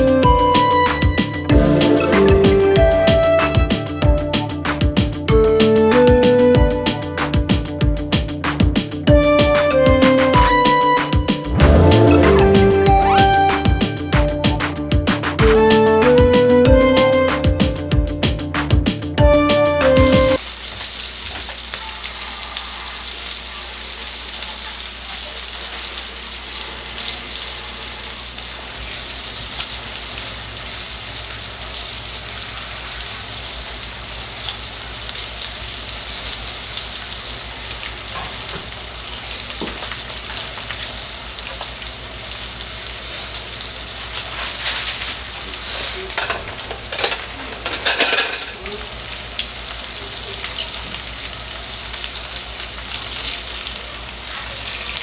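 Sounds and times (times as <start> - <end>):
chicken sizzling in hot oil: 20.4 - 55.0.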